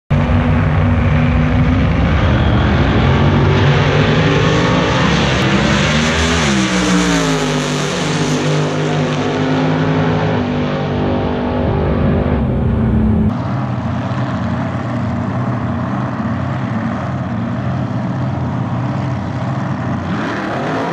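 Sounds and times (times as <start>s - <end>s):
race car engine at full throttle: 0.1s - 20.9s.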